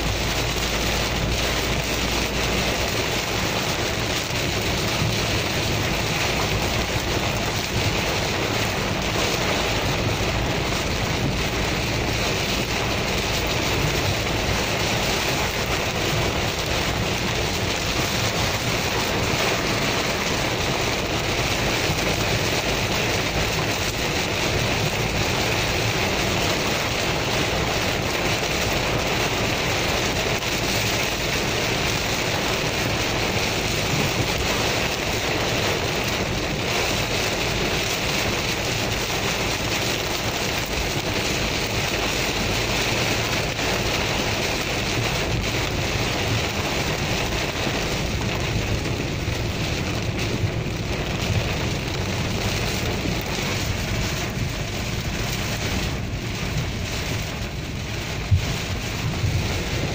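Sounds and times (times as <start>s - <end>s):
heavy rain on car roof: 0.0s - 59.9s
tyres hissing on wet road: 0.0s - 59.9s.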